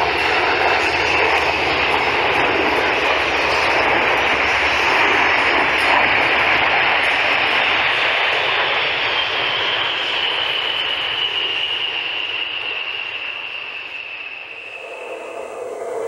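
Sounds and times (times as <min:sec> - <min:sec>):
jets flying past: 0:10.5 - 0:16.0.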